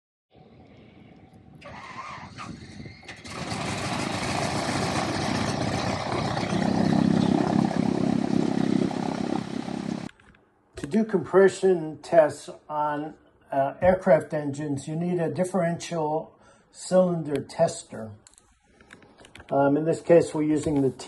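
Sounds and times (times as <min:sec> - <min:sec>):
radial engine starting and running: 0:03.0 - 0:10.1.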